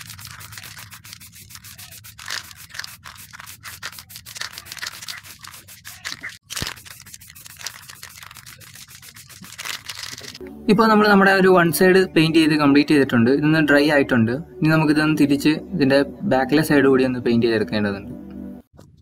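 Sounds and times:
spray can hissing: 0.0s - 10.0s.

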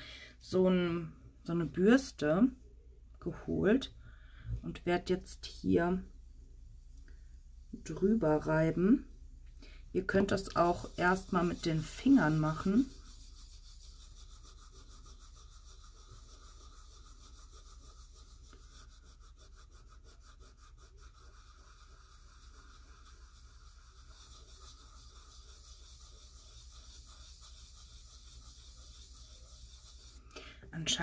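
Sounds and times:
fingertips rubbing on card: 9.7s - 30.3s.

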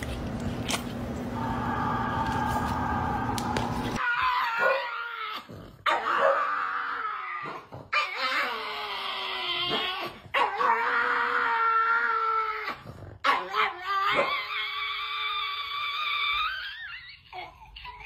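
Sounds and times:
dog howling: 1.4s - 17.2s.

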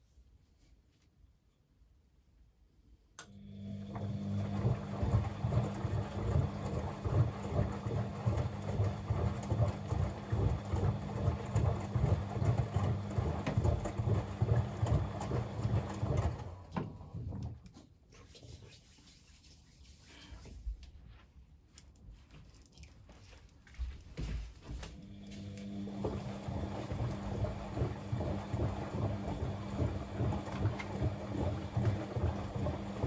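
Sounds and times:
washing machine motor humming: 3.2s - 17.7s, 24.7s - 33.0s
laundry tumbling and sloshing: 4.4s - 17.6s, 23.0s - 33.0s.

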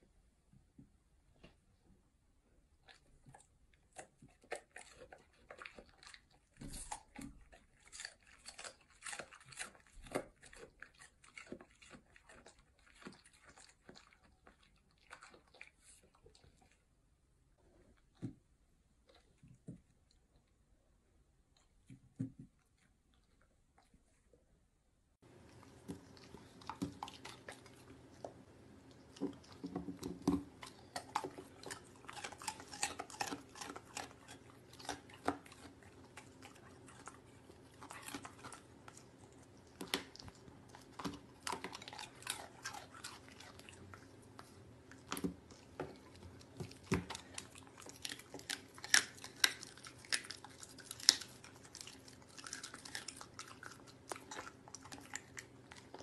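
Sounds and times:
dog chewing meat and bone: 2.8s - 16.8s, 25.2s - 56.0s.

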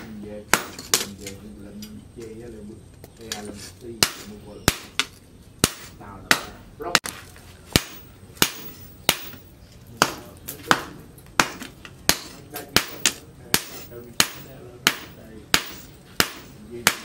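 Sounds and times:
hammer striking hot metal on anvil: 4.0s - 7.1s, 7.7s - 17.0s.

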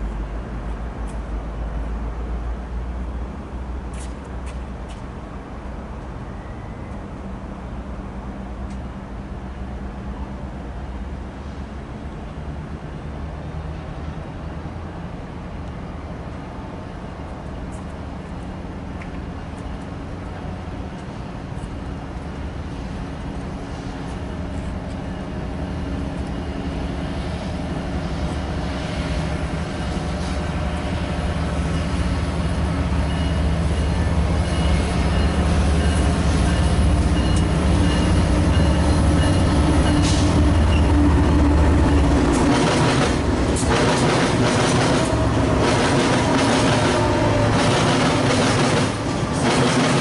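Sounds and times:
diesel locomotive engine drone: 0.0s - 50.0s
train wheels clicking over rail joints: 29.2s - 50.0s.

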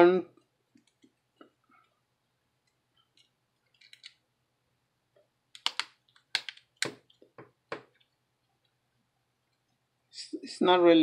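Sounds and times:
sharp plastic clicks: 5.5s - 7.9s.

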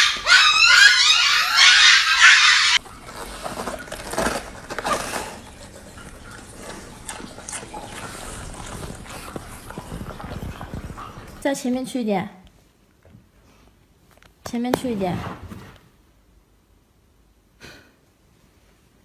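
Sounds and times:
puppies yipping: 0.0s - 2.8s
dog chewing lettuce: 2.8s - 11.5s.

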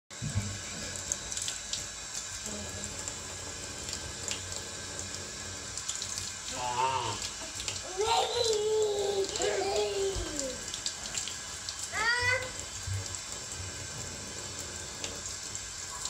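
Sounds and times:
faucet water splashing in basin: 0.2s - 16.0s
toddler babbling: 7.8s - 10.7s, 11.9s - 12.6s.

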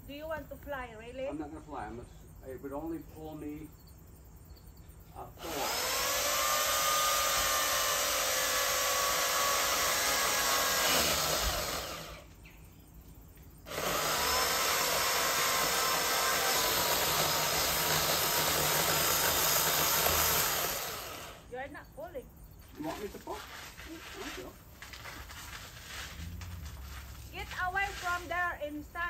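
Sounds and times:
electric chainsaw cutting wood: 5.4s - 12.3s, 13.7s - 21.5s.

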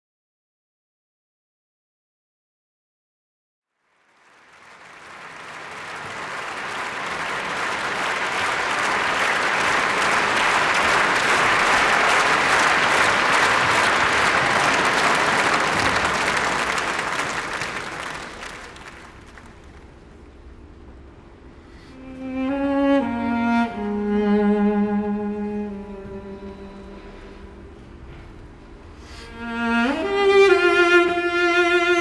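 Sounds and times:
audience applauding: 3.8s - 20.3s.

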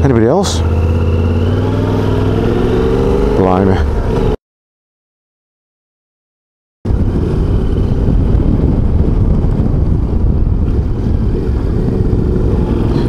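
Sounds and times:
motorcycle engine running: 0.0s - 4.2s
wind on microphone: 6.9s - 13.0s.

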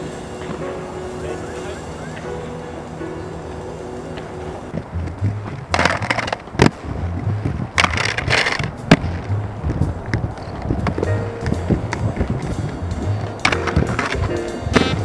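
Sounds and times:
inline skates rolling on stone: 4.1s - 15.0s
skates grinding on ledge: 4.2s - 15.0s
skates landing clack: 5.0s - 12.8s.

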